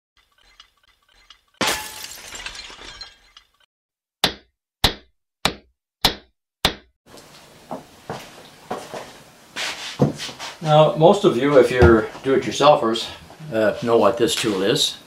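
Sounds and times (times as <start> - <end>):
glass shattering crash: 1.6 - 3.5.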